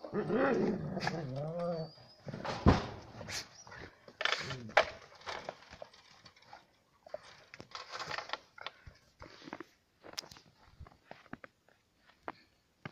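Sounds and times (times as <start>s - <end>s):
paws crunching in snow: 8.7s - 12.9s.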